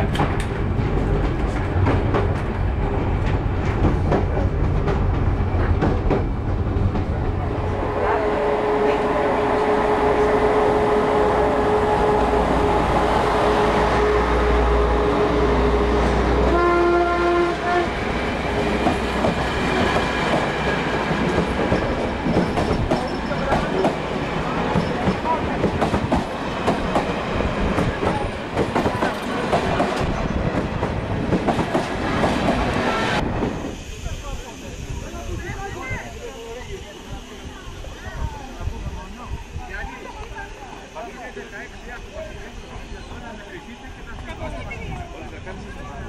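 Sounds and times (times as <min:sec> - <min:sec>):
train wheels clattering on rails: 0:00.0 - 0:07.4, 0:17.9 - 0:33.6
passing train steady tone: 0:00.0 - 0:46.0
train horn blast: 0:07.6 - 0:18.0.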